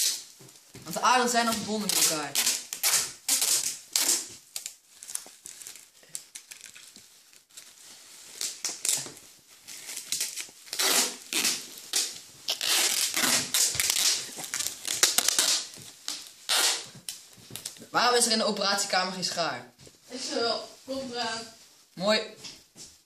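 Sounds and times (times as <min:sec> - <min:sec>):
packing tape ripping off roll: 0:00.0 - 0:00.4, 0:01.5 - 0:07.7, 0:08.3 - 0:17.9.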